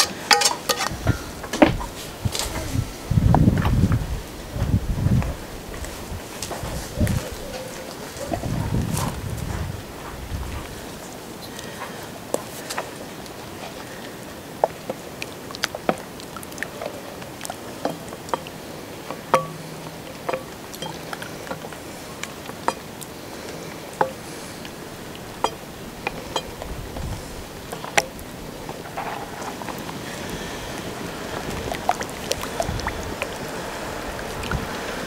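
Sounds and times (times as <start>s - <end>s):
low steady hiss: 0.0s - 35.0s
spatula knocking in metal pot: 19.2s - 21.0s.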